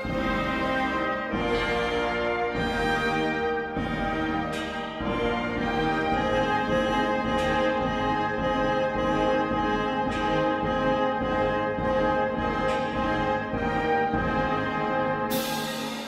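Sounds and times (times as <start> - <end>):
orchestral music led by brass: 0.0 - 16.0.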